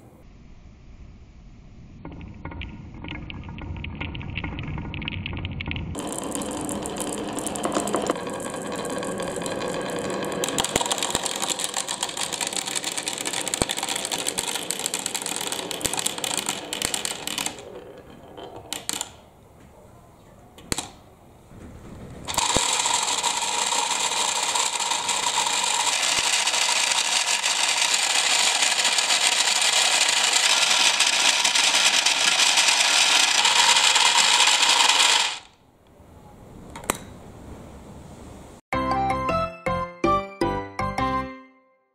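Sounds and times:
marbles churning in water: 0:02.1 - 0:17.7, 0:22.3 - 0:35.4
marbles clattering down wooden track: 0:02.1 - 0:19.2, 0:22.3 - 0:35.5
toy washing machine whirring: 0:06.0 - 0:18.0, 0:22.3 - 0:35.5.

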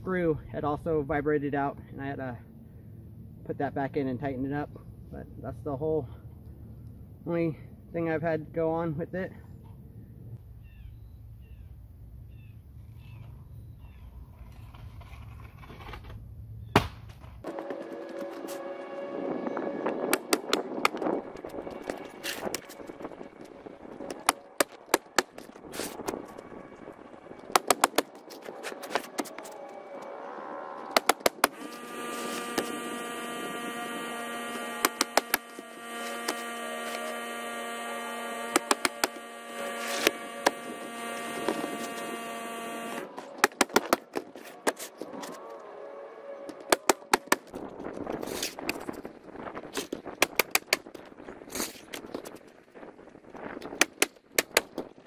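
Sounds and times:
steady hum: 0:17.4 - 0:51.4
nail gun firing: 0:27.6 - 0:28.1, 0:31.0 - 0:31.8, 0:34.8 - 0:35.6, 0:38.5 - 0:39.2, 0:42.7 - 0:44.1.

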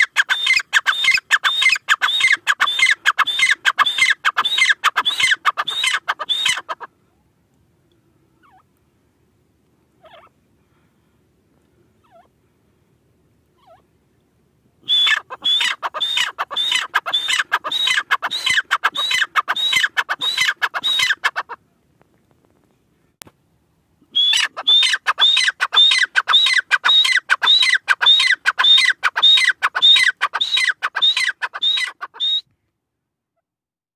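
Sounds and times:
francolin calling: 0:00.0 - 0:06.9, 0:14.8 - 0:21.5, 0:24.1 - 0:32.4.

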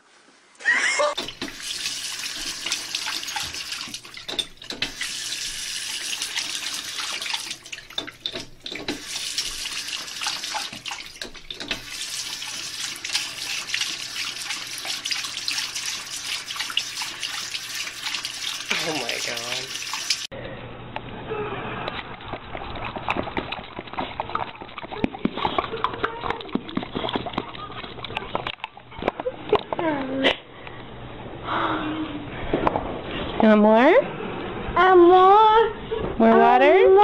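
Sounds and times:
tap water splashing into sink: 0:01.2 - 0:20.3.

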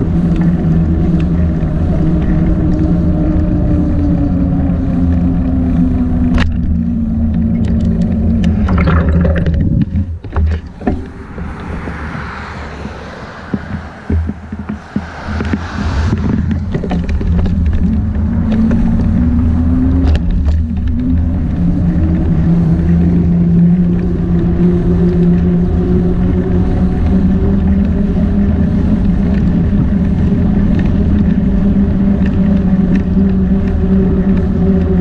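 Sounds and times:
low rumble: 0:00.0 - 0:35.0
small motor droning: 0:10.2 - 0:35.0.

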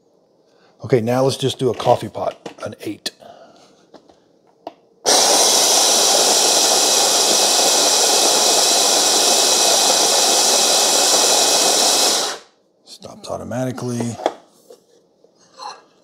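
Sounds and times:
coffee grinder motor whirring: 0:05.1 - 0:12.4.

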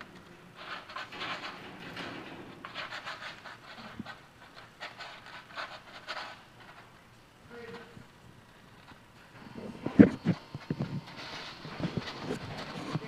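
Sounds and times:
wire cage door rattling: 0:00.0 - 0:06.3
claws scraping on metal bars: 0:00.0 - 0:06.9.

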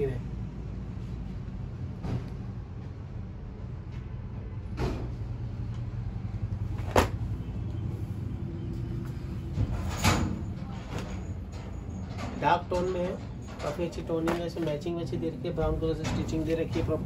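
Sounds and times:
steady low hum: 0:00.0 - 0:17.0
handling knocks and clunks: 0:06.7 - 0:07.3, 0:09.4 - 0:17.0.

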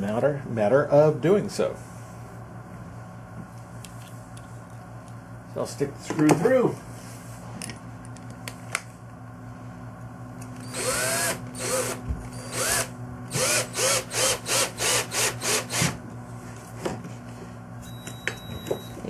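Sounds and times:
cordless drill whine: 0:10.4 - 0:16.0.

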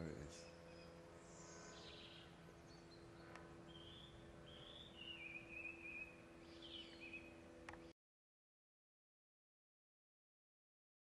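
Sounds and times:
faint birdsong: 0:00.0 - 0:08.0
faint steady hum: 0:00.0 - 0:08.0.

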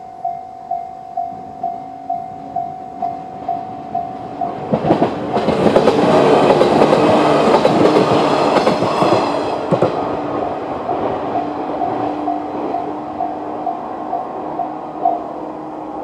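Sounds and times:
level crossing warning bell: 0:00.0 - 0:07.6, 0:10.3 - 0:16.0
electric train passing: 0:00.0 - 0:16.0
train wheels clacking over rail joints: 0:03.0 - 0:14.3.

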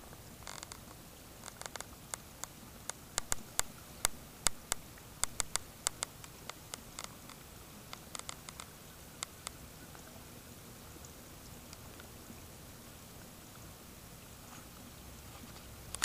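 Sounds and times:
water dripping and plinking: 0:00.0 - 0:10.2
faint steady hiss: 0:00.0 - 0:16.0.

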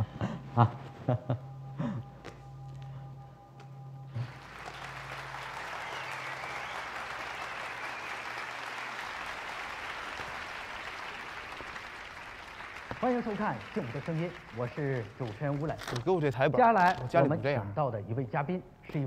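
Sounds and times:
low steady hum: 0:00.0 - 0:07.5
audience applauding: 0:04.1 - 0:16.3.

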